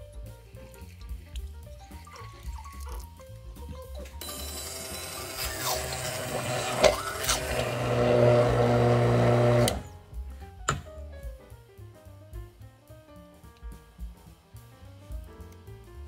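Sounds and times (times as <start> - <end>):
immersion blender motor whirring: 4.3 - 9.9.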